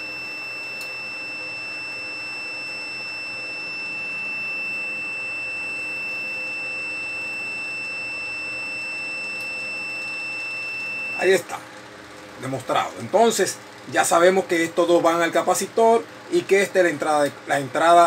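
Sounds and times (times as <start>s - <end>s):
multimeter continuity buzzer beep: 0.0s - 11.5s.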